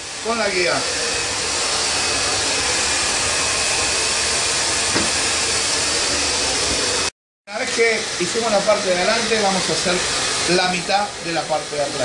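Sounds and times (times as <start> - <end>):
hair dryer blowing: 0.0 - 12.0.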